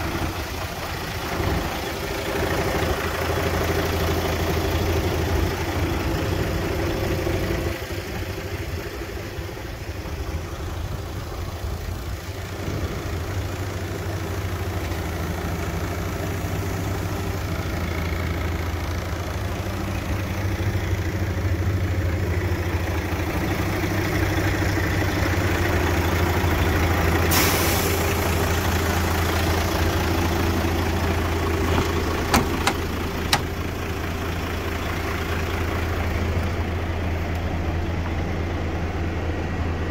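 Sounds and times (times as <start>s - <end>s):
diesel engine idling: 0.0s - 39.9s
short air hiss: 27.3s - 28.1s
sharp clicks: 31.7s - 33.6s.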